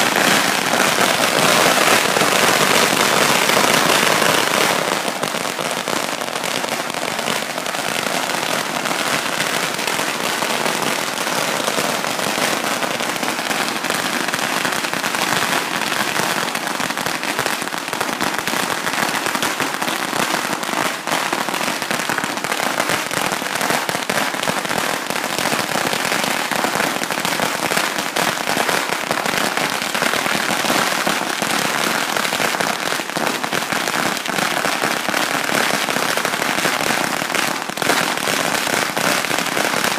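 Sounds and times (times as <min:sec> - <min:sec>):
firecrackers banging rapidly: 0:00.0 - 0:26.4.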